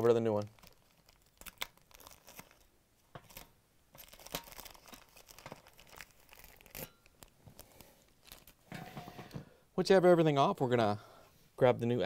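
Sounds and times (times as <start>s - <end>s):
adhesive envelope peeling off: 0.3s - 2.7s, 3.3s - 8.6s.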